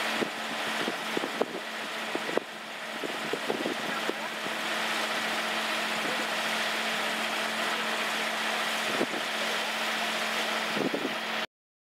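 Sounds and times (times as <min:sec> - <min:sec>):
wind and sea hiss: 0:00.0 - 0:11.4
engine humming: 0:00.0 - 0:11.5.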